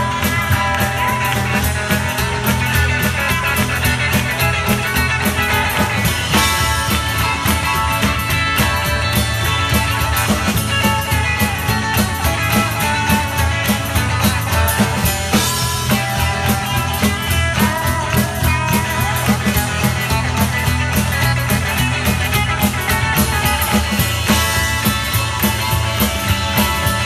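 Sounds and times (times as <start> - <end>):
acoustic and electric guitars: 0.0 - 27.0
drums keeping a steady beat: 0.0 - 27.0
harmonica bending notes: 0.0 - 27.0
upright bass: 0.0 - 27.0.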